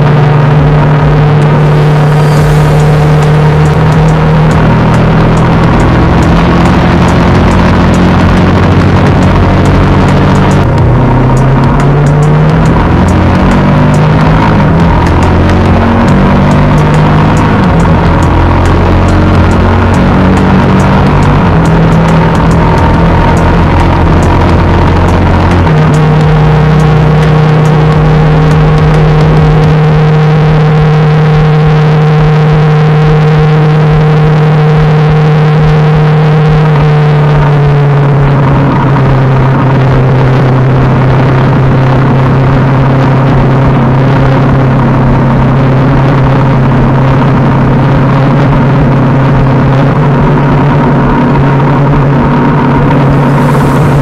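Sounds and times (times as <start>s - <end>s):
motorcycle engine cruising: 0.0s - 54.0s
wind noise: 37.8s - 54.0s.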